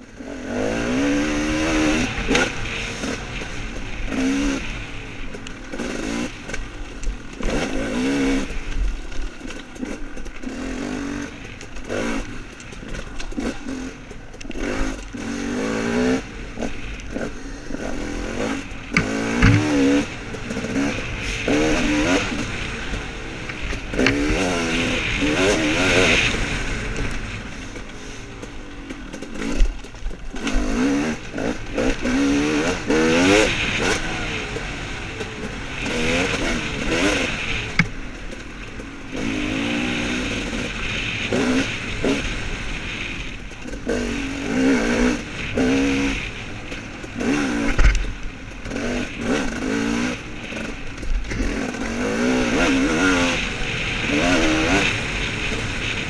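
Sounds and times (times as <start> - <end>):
dirt bike engine revving: 0.0 - 56.0
bike knocking and clattering: 18.6 - 25.5.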